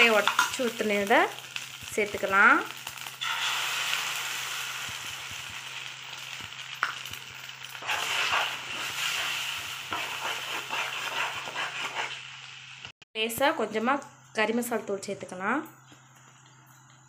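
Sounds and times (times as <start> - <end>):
eggs sizzling in a hot pan: 0.0 - 13.0
steel spoon stirring in a pan: 7.7 - 12.3.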